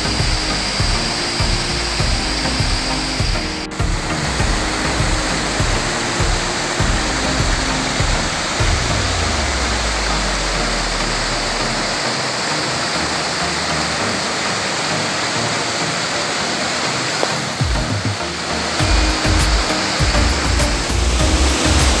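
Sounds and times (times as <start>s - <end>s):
waterfall rushing over rocks: 0.0s - 22.0s
low rumble: 3.8s - 12.0s.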